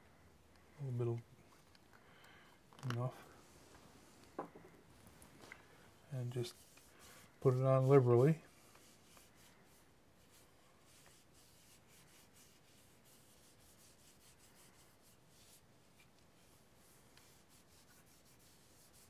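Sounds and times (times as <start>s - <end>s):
rag rubbing on wood: 16.5s - 19.0s.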